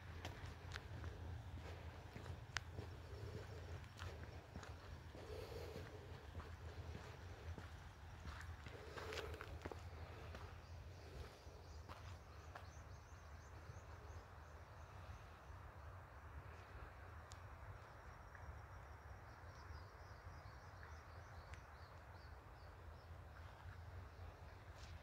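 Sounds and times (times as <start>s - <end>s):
low steady rumble: 0.0s - 11.8s.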